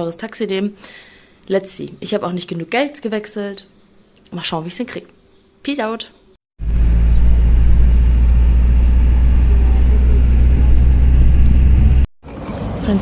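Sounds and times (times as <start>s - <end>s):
vehicle engine and road noise: 6.6s - 13.0s.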